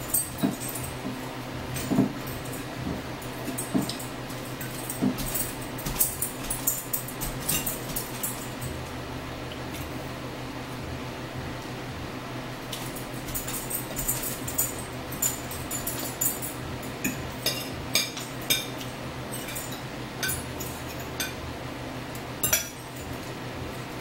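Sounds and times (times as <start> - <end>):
forks clinking on plates: 0.0 - 1.1, 1.7 - 2.7, 3.4 - 8.8, 12.7 - 21.4, 22.4 - 23.3.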